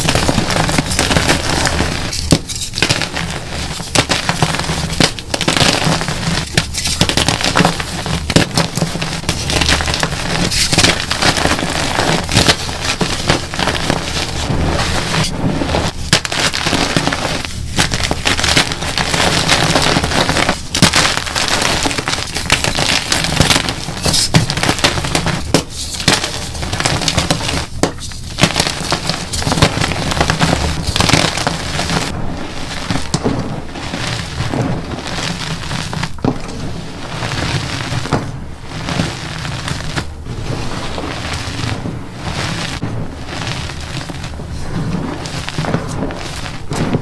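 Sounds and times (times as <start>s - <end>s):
chalk crunching by hand: 0.0s - 32.1s.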